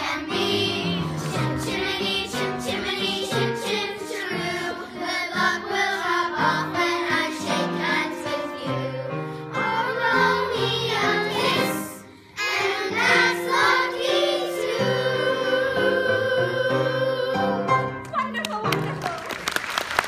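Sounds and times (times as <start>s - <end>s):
instrumental accompaniment: 0.0s - 8.7s
children's chorus singing: 0.0s - 17.7s.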